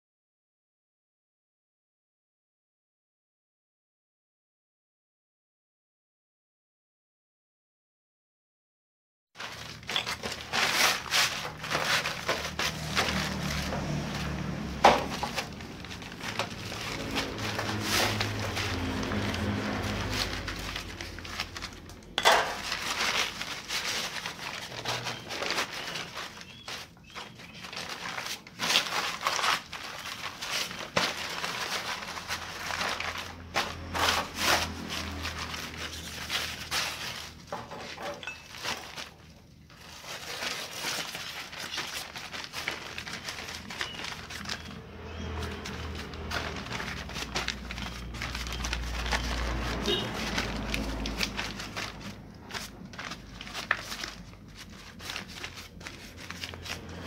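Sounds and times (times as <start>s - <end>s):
paper bag crinkling: 9.4s - 57.0s.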